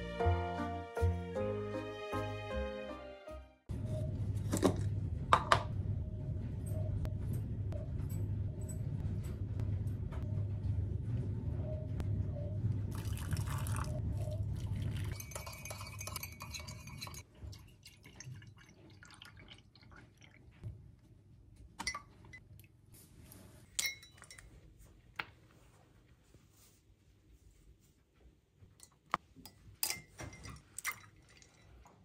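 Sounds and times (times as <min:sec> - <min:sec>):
low hum: 0:03.7 - 0:15.2
liquid pouring: 0:12.9 - 0:20.6
spoon scraping: 0:15.1 - 0:17.2.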